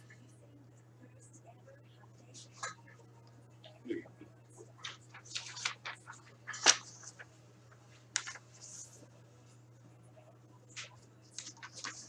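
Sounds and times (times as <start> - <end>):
low steady hum: 0.0 - 12.0
paper sheets rustling: 4.8 - 9.0, 10.7 - 12.0.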